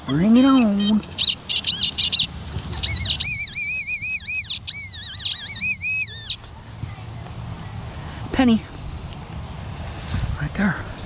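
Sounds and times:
songbird singing: 0.0 - 9.6.

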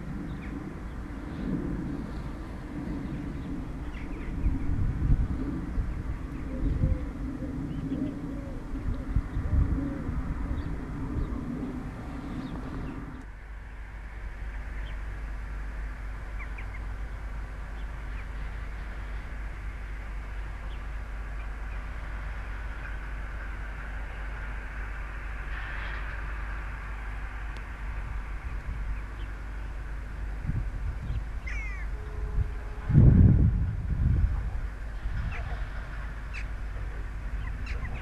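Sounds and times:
birds calling: 0.0 - 13.3, 16.2 - 23.6, 31.0 - 32.8, 34.4 - 38.0
wind buffeting microphone: 0.0 - 13.3, 16.0 - 38.0
distant freight train rumble: 0.0 - 38.0.

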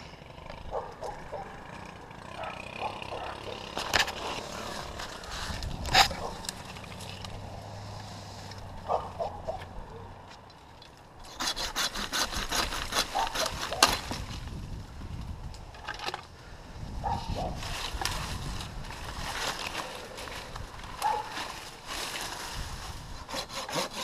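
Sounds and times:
hand saw rasping through wood: 3.0 - 6.4, 11.2 - 14.1, 23.1 - 24.0.

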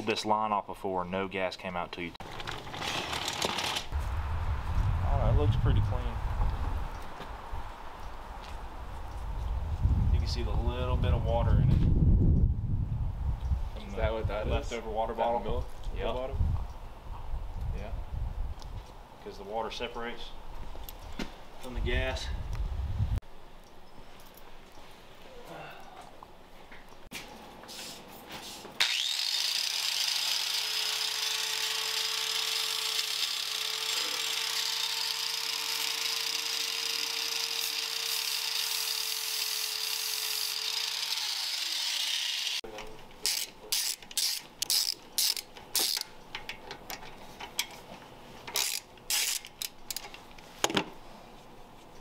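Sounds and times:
angle grinder grinding metal: 28.8 - 42.6
ratchet wrench clicking: 43.2 - 46.1, 48.6 - 50.0.

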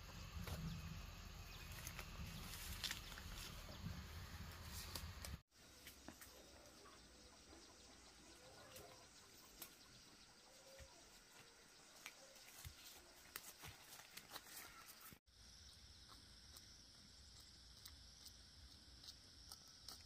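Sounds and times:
faint chirps: 5.6 - 20.0.

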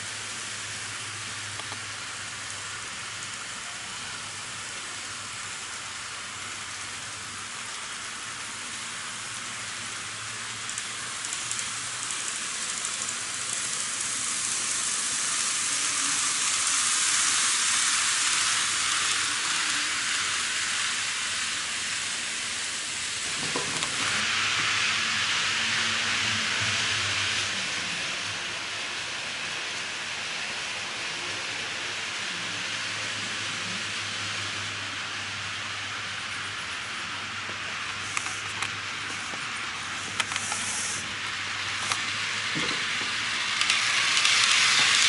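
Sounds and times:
model train rolling on track: 0.0 - 45.0.

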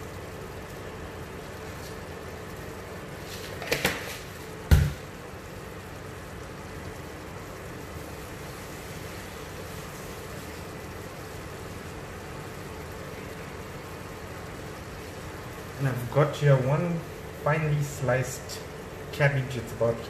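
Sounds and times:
pot boiling hiss: 0.0 - 20.0
dull thump: 4.7 - 5.0.

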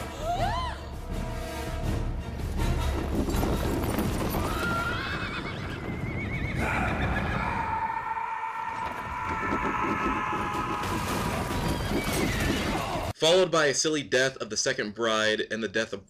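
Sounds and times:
racing carriage: 2.6 - 6.6, 8.8 - 13.1
clatter of hooves: 2.8 - 6.5, 8.8 - 13.1
horses whinnying: 3.4 - 13.1.

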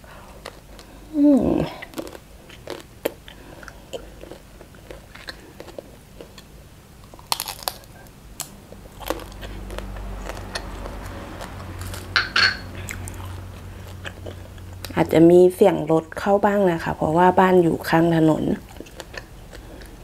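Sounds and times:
low steady rumble: 0.0 - 20.0
crunchy bites: 1.7 - 12.2
shrimp being chewed: 1.8 - 15.0, 18.6 - 20.0.

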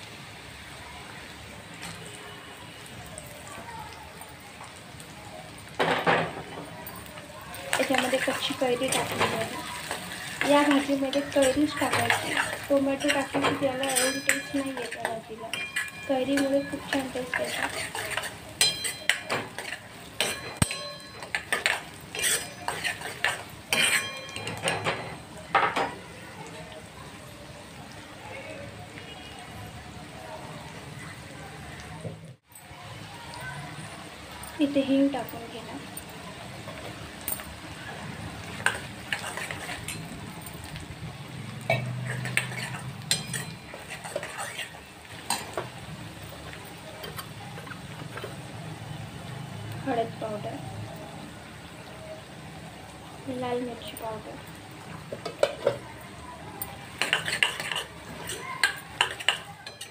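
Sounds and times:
onions sizzling in hot oil: 0.0 - 59.9
metal spatula scraping a pan: 7.6 - 25.2, 37.7 - 40.7, 41.7 - 48.4, 57.0 - 59.9.

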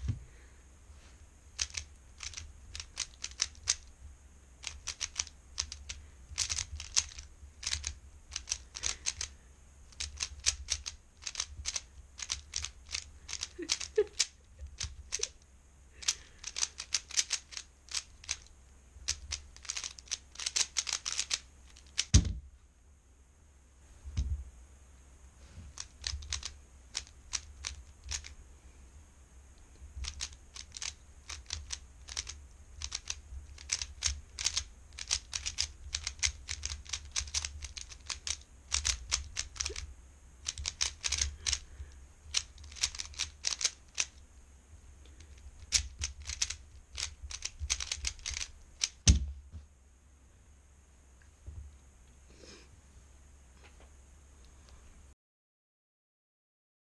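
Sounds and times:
heavy thump: 0.0 - 0.3, 22.1 - 22.6, 24.1 - 24.5, 49.0 - 49.7
puzzle cube clicking as turned: 1.6 - 3.9, 4.6 - 9.3, 9.9 - 15.4, 16.0 - 22.3, 25.7 - 28.4, 30.0 - 41.7, 42.3 - 44.2, 45.2 - 49.3.

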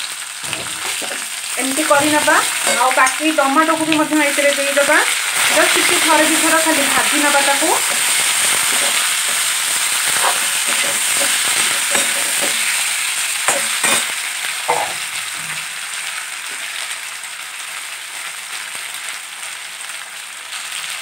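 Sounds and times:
food sizzling in oil: 0.0 - 21.0
metal spatula scraping pan: 0.4 - 12.9, 13.5 - 14.1.

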